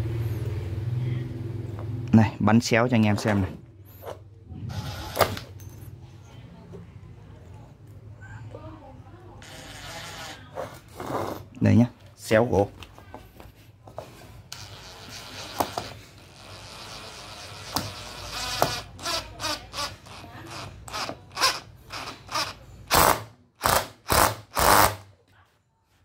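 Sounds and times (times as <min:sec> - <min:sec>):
impact driver driving screw into wood: 0:04.7 - 0:05.5, 0:14.6 - 0:16.0, 0:16.6 - 0:25.1.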